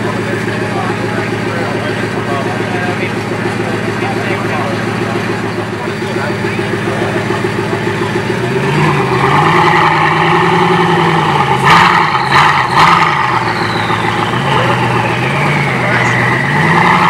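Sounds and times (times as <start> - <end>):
car engine running: 0.0 - 17.0
engine revs: 0.0 - 17.0
falling whistle: 12.0 - 17.0.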